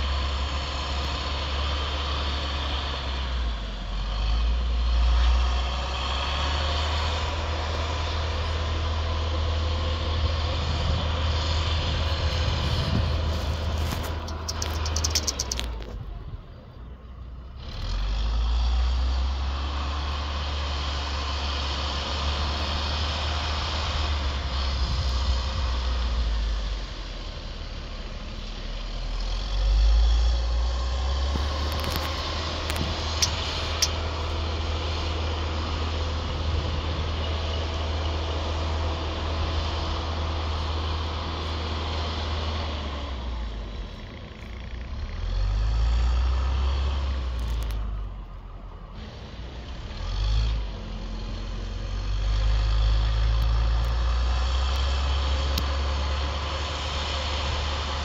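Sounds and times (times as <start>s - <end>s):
diesel engine rumbling and revving: 0.0s - 58.0s.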